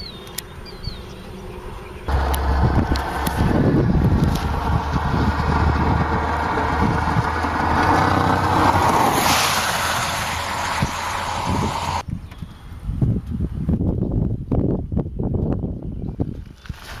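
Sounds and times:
vehicle passing on road: 0:02.1 - 0:12.0
wind buffeting microphone: 0:02.1 - 0:17.0.

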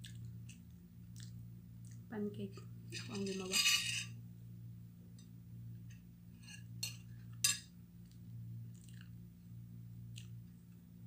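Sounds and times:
faint chewing: 0:00.0 - 0:02.1, 0:08.0 - 0:09.2, 0:10.0 - 0:10.8
low hum: 0:00.0 - 0:11.0.

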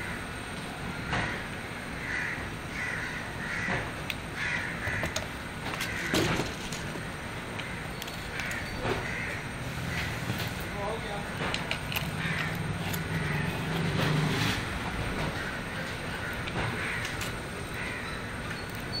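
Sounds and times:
bird calling: 0:07.0 - 0:11.3, 0:12.0 - 0:19.0.

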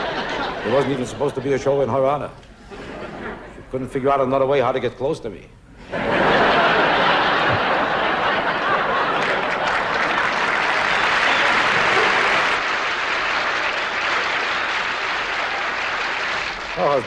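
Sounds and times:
audience applause: 0:06.4 - 0:17.0.

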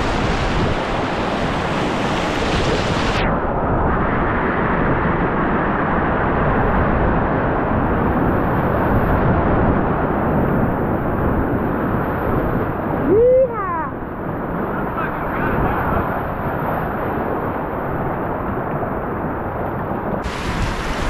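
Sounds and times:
whitewater rapids rushing: 0:20.2 - 0:21.0.

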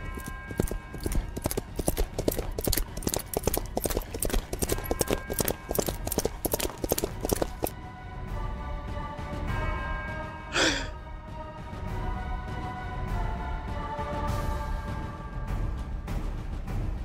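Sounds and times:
horse hooves clip-clopping: 0:00.0 - 0:07.7.

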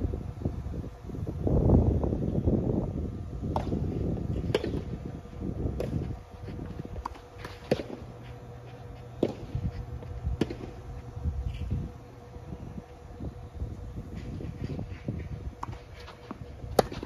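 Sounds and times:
tennis ball bouncing: 0:05.7 - 0:10.9.

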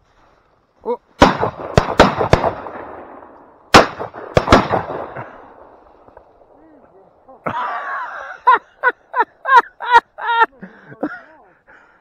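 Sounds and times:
shotgun shots: 0:01.2 - 0:05.8.

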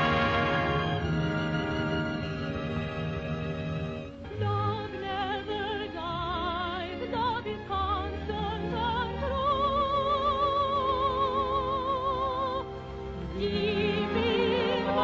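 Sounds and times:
orchestral accompaniment: 0:00.0 - 0:15.0
operatic soprano singing: 0:04.3 - 0:15.0.

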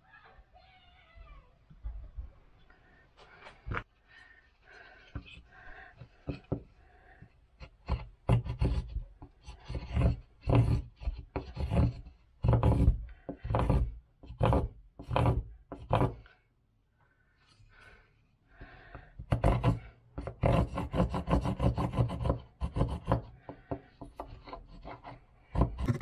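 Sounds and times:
hand file rasping wood: 0:05.1 - 0:16.3, 0:18.7 - 0:26.0.

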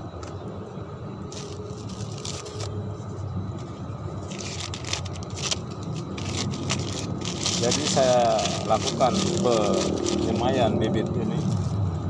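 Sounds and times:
steady low rumble: 0:00.0 - 0:12.0
plastic bag crinkling: 0:01.3 - 0:02.7, 0:04.2 - 0:11.8
hand scraping soil: 0:04.3 - 0:10.5.

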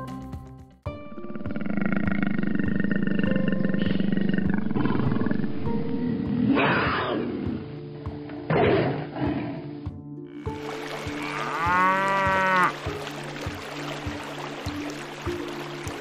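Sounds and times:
background music: 0:00.0 - 0:16.0
tiger growling: 0:01.2 - 0:07.7
tiger roar: 0:01.3 - 0:07.6.

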